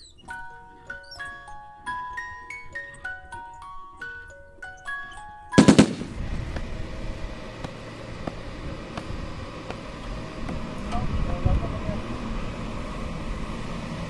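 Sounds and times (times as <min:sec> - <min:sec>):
low engine rumble: 0:00.0 - 0:14.0
rapid loud cracks: 0:05.6 - 0:06.2.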